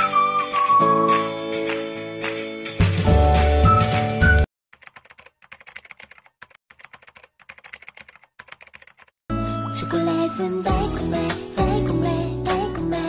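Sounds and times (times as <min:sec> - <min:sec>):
music: 0:00.0 - 0:04.5, 0:09.3 - 0:13.0
keyboard typing clicks: 0:04.8 - 0:09.1.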